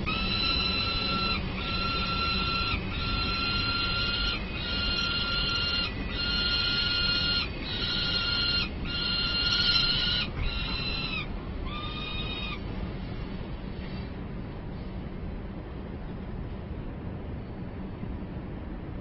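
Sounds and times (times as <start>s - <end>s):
young falcon begging calls: 0.0s - 12.6s
steady low rumble: 0.0s - 19.0s.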